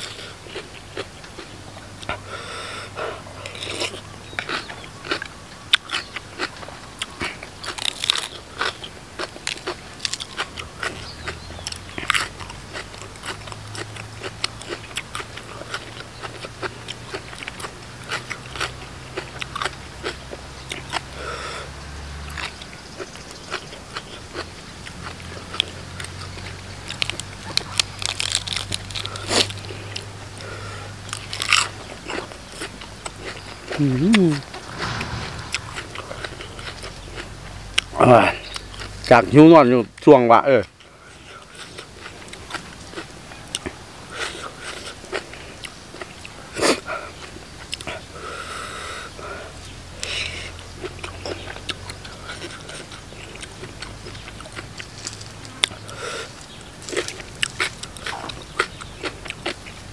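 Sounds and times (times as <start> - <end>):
person crunching and chewing: 3.4 - 21.0, 26.4 - 35.7, 50.8 - 59.9.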